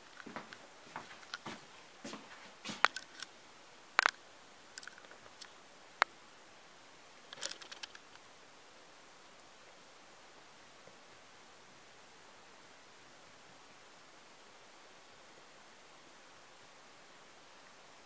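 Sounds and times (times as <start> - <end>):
sharp handling clicks: 7.3 - 8.2.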